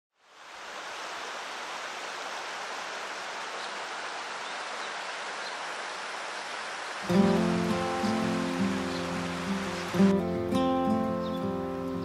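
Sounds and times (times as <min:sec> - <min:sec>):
stream flowing over rocks: 0:00.2 - 0:12.0.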